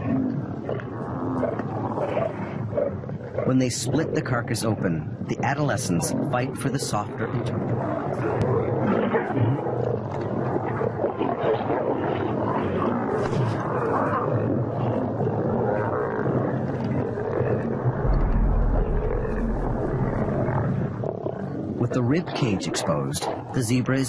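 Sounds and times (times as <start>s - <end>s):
lions growling and snarling: 0.0s - 4.3s, 7.5s - 22.3s
deep low rumble: 17.9s - 21.8s.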